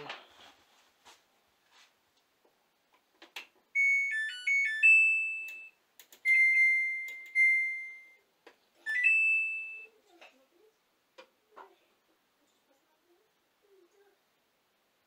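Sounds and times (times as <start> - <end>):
electronic beeps: 3.8 - 8.2, 8.9 - 9.9.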